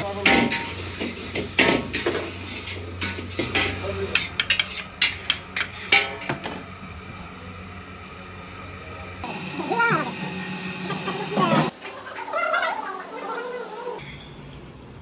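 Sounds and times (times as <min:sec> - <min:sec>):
metal utensils clinking on pan: 0:00.2 - 0:00.8.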